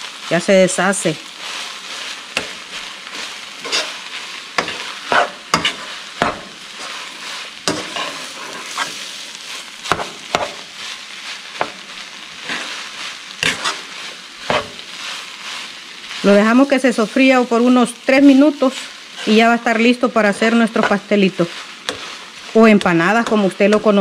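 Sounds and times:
food sizzling in a frying pan: 0.0 - 24.0
utensil scraping a pan: 1.4 - 11.8, 12.4 - 16.4, 20.7 - 24.0.

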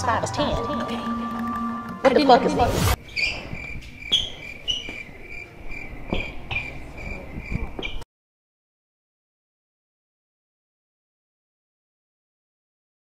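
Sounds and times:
crickets chirping: 3.0 - 8.0.

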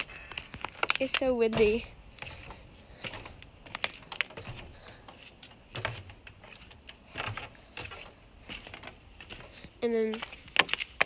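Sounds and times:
footsteps on dirt: 0.0 - 11.0
soft low thuds: 1.4 - 3.7.

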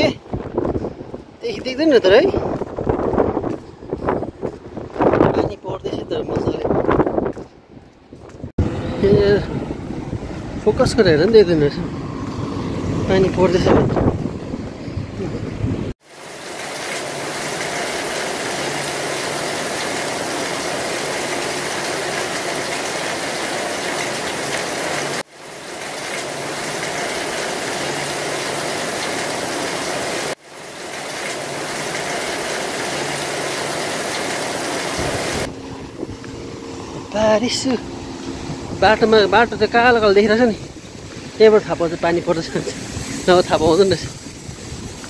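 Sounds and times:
rain falling: 16.0 - 36.5, 37.1 - 45.0.

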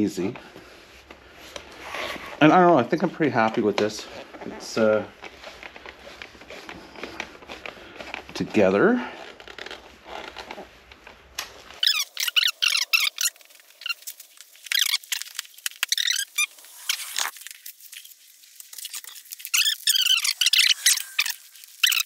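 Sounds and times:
high-pitched squeaking and chirping: 11.8 - 17.4, 18.8 - 22.0.

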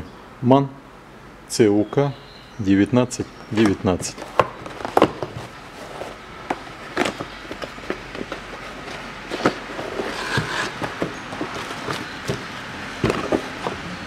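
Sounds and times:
sliding rustle of cardboard: 3.6 - 13.8.

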